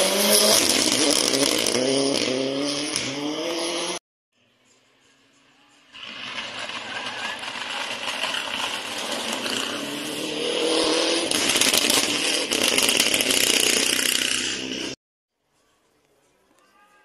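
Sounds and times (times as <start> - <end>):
rally car engine: 0.0 - 4.0, 5.9 - 15.0.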